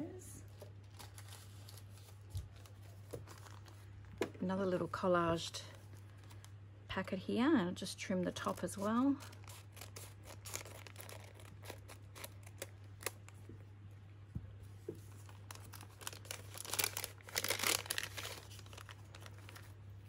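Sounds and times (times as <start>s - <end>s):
paper rustling and crinkling: 0.5s - 4.2s, 8.4s - 13.4s, 14.9s - 19.8s.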